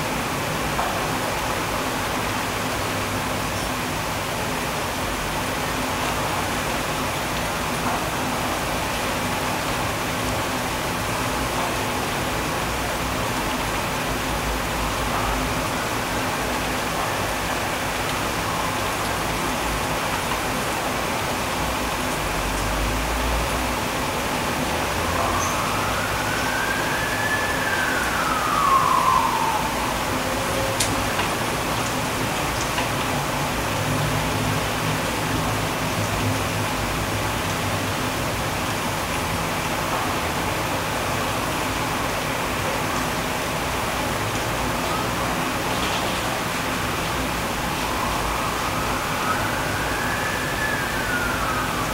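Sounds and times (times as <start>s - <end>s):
heavy rain pouring: 0.0s - 51.9s.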